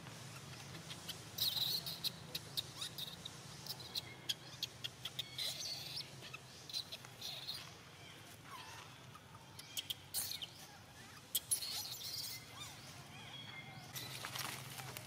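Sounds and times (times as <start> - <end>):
baby monkey squealing: 1.0 - 7.6, 9.6 - 13.4.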